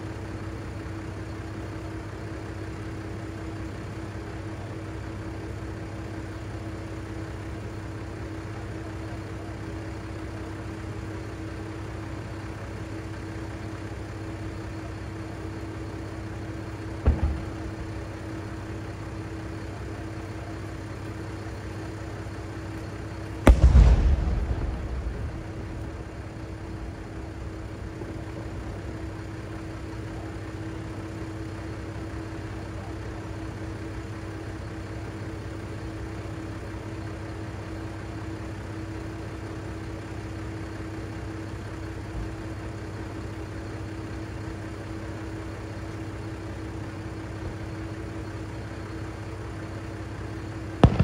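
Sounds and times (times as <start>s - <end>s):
diesel engine idling: 0.0s - 51.0s
fireworks bangs: 17.0s - 19.6s, 23.0s - 29.0s, 50.8s - 51.0s.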